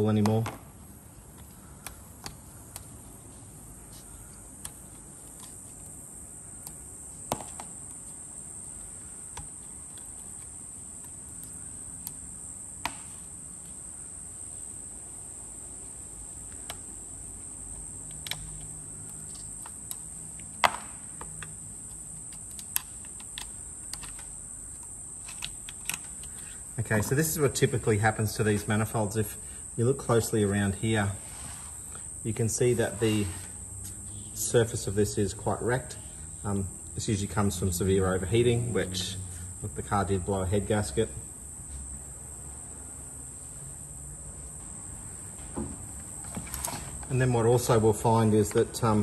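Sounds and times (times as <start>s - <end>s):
high-pitched insect drone: 23.2s - 42.4s.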